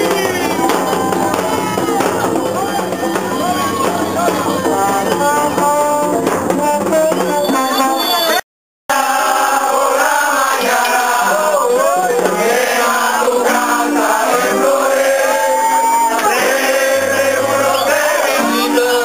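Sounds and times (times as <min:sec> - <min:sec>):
hand drum: 0:00.0 - 0:08.0
crowd singing: 0:00.0 - 0:19.0.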